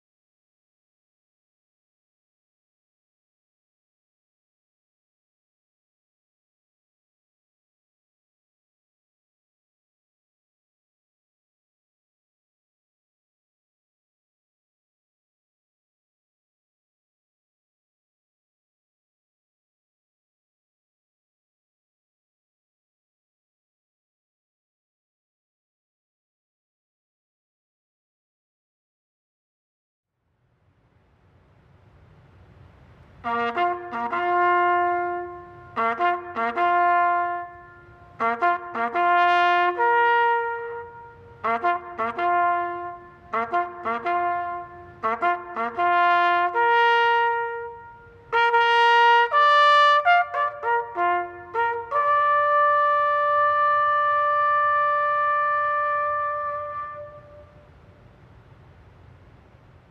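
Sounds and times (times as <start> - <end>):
solo trumpet bugle call: 33.2 - 57.8.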